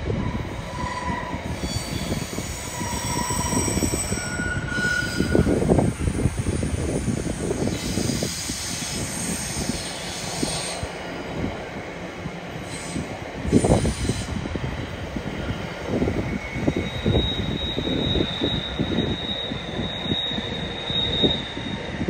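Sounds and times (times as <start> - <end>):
train wheels rumbling over rails: 0.0 - 22.0.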